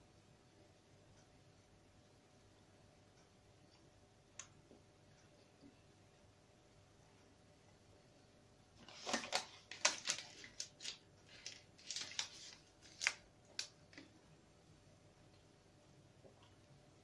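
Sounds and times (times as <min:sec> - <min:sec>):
plastic wrapper crinkling: 0:08.8 - 0:14.2.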